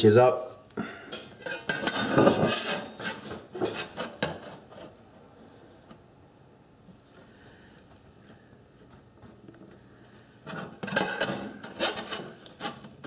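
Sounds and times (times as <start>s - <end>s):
tool scratching on metal: 1.4s - 4.8s, 10.5s - 13.0s.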